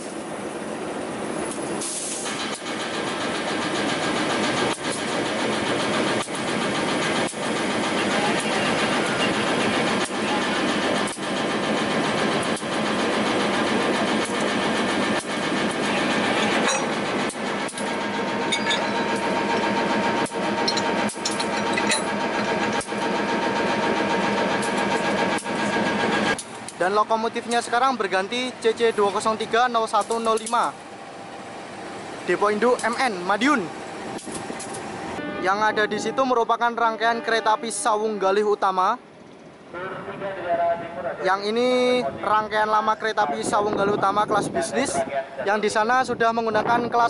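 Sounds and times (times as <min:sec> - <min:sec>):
diesel locomotive running: 0:00.0 - 0:47.0.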